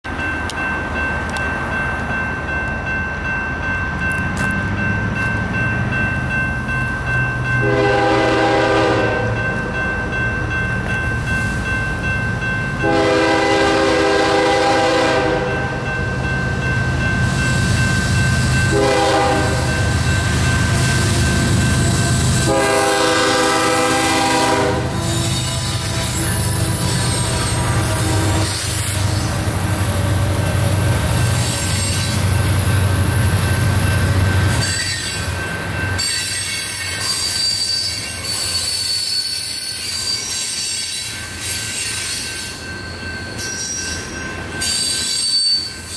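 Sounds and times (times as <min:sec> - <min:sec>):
crossing bell ringing: 0:00.0 - 0:45.9
locomotive air horn blasts: 0:07.6 - 0:09.4, 0:12.8 - 0:15.9, 0:18.7 - 0:19.8, 0:22.3 - 0:29.0.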